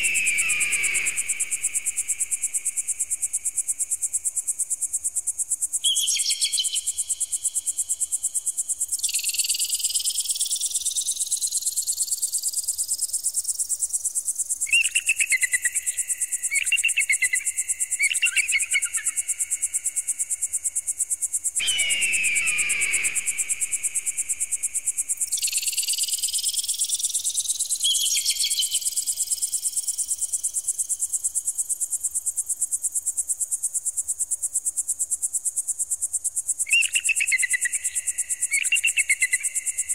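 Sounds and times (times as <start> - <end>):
rising whistle sweeps: 0.0 - 1.8, 21.6 - 24.4
falling electronic screech: 21.6 - 23.6.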